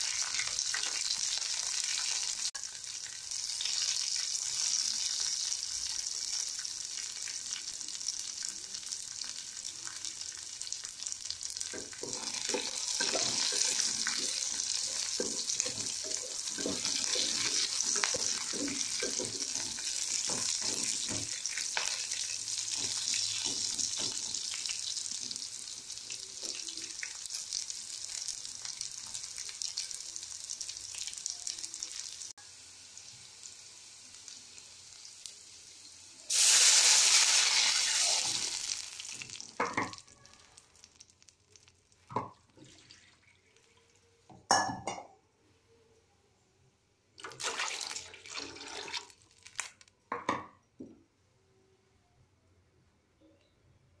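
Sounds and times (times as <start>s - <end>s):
onions sizzling in oil: 0.0s - 42.3s
water hissing in hot oil: 11.7s - 39.5s.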